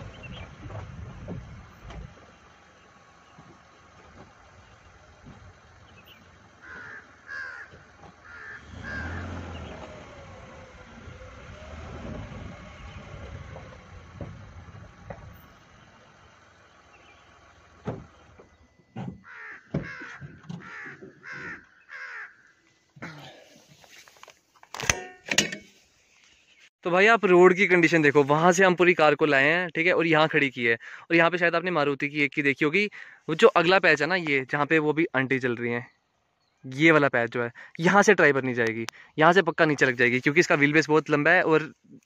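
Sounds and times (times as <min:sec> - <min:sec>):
car rumbling over rocky track: 0:00.0 - 0:21.6.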